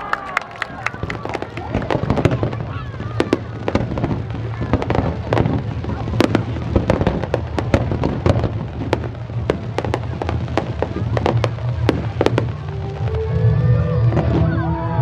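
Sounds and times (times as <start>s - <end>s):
fireworks bangs: 0.0s - 15.0s
fireworks crackle: 0.0s - 15.0s.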